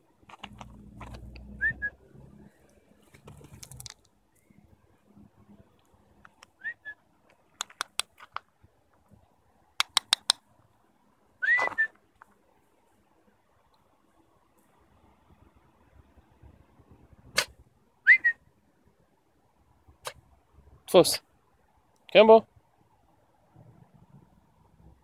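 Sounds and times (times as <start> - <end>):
sharp clicks: 6.2 - 6.6, 7.6 - 8.5, 9.8 - 10.4.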